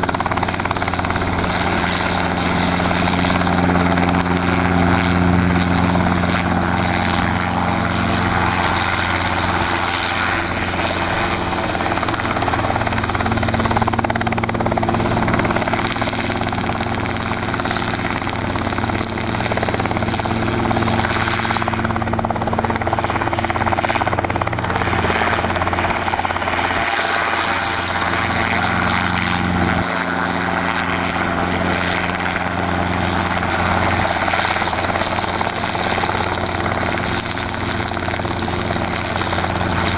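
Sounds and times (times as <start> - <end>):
helicopter hovering: 0.0 - 39.9.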